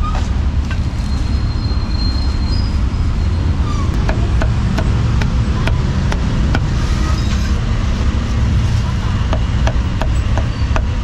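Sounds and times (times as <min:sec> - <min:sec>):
street traffic rumble: 0:00.0 - 0:11.0
cleaver chopping on wooden board: 0:04.0 - 0:06.7.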